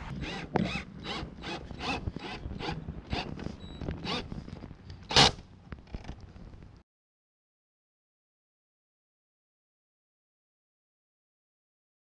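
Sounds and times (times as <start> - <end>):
drill driving screws: 0.0 - 4.4, 5.1 - 5.4.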